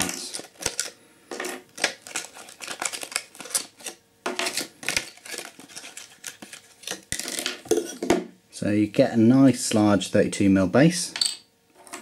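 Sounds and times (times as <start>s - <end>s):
plastic blister pack crackling: 0.0s - 1.0s, 1.7s - 7.1s.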